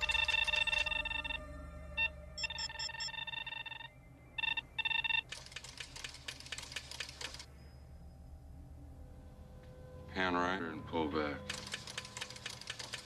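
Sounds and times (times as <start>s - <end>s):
high electronic chirps: 0.0s - 5.3s
electronic beeping tones: 0.0s - 5.4s
rapid clicking: 5.3s - 7.5s, 11.5s - 13.0s
low steady hum: 7.3s - 12.4s.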